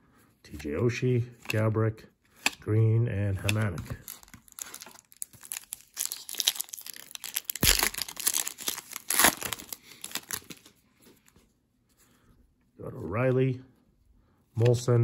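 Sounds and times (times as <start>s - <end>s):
foil wrapper crinkling: 4.0s - 10.7s
foil wrapper ripping: 4.0s - 10.7s.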